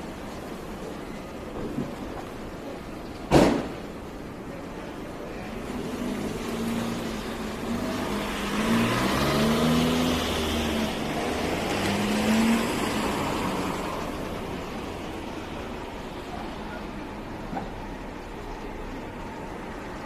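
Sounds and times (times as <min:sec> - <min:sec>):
car engine passing: 0:05.6 - 0:15.6.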